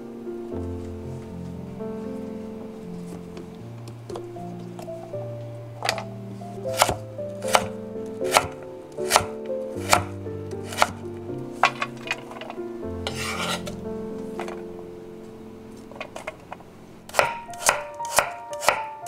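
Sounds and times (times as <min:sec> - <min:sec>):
knife chopping on wooden board: 0:06.7 - 0:07.7, 0:08.3 - 0:11.0, 0:13.1 - 0:13.7, 0:17.1 - 0:18.9.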